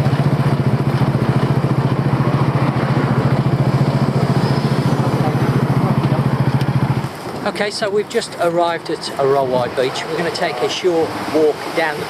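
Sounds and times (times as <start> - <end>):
small motorbike engine running: 0.0 - 7.1.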